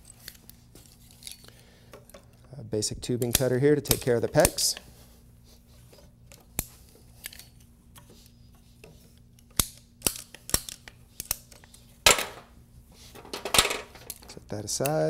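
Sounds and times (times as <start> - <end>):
pipe cutter snipping plastic pipe: 3.2 - 4.8.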